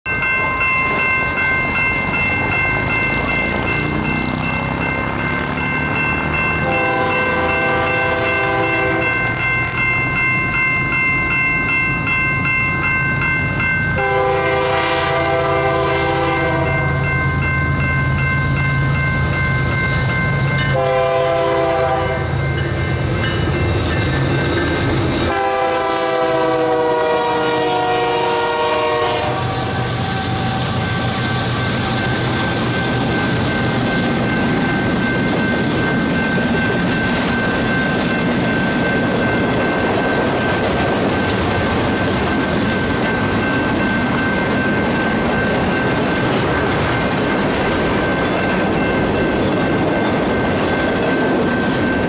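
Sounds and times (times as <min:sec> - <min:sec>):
crossing warning bell ringing: 0:00.0 - 0:52.0
locomotive engines droning: 0:00.1 - 0:52.0
rail cars clattering past: 0:00.1 - 0:52.0
locomotive air horn: 0:06.6 - 0:09.2, 0:14.0 - 0:16.9, 0:20.7 - 0:22.3, 0:25.3 - 0:30.8.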